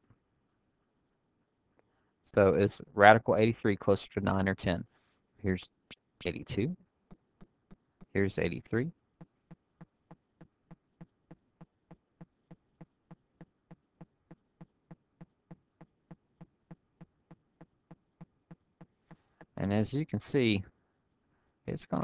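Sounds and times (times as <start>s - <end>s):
faint regular ticking: 6.2s - 19.7s.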